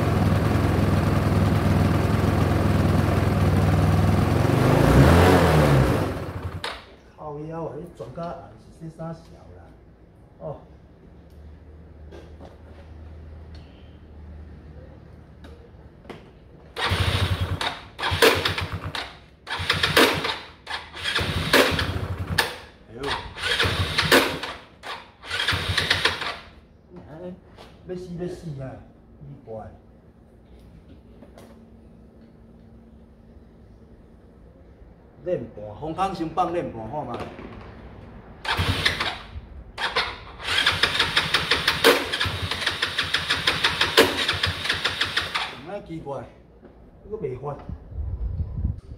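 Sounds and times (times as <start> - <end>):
scooter electric starter cranking: 16.8 - 26.6, 38.4 - 45.6.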